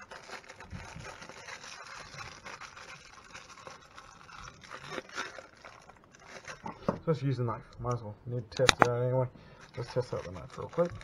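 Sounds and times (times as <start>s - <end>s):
plastic packaging rustling: 0.0s - 8.0s, 8.6s - 11.0s.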